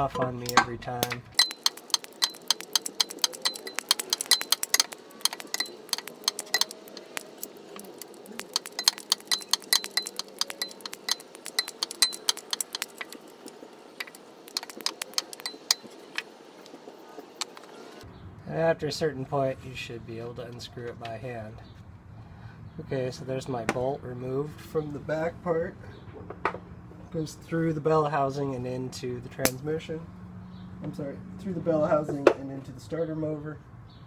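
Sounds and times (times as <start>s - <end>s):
ratchet wrench clicking: 1.0s - 16.0s.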